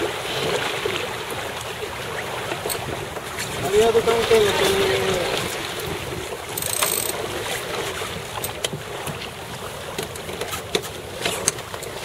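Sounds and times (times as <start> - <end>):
water rushing past boat: 0.0 - 12.0
deck gear clicks and knocks: 6.6 - 7.2.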